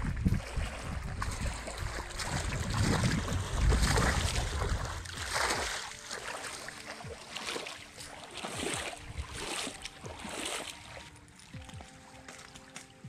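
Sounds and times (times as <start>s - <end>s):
net splashing out of water: 0.0s - 11.0s
background music: 0.1s - 13.0s
net and fish slapping on sand: 1.3s - 11.7s.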